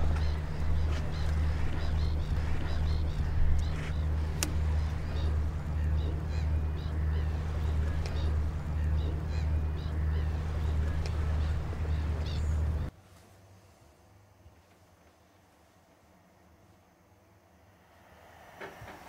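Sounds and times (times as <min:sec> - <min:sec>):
waterbirds calling: 0:00.0 - 0:12.9.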